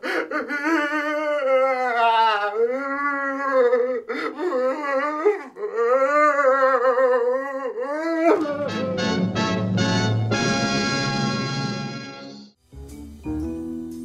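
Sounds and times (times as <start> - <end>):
man wailing and sobbing: 0.0 - 9.3
music: 8.4 - 14.0.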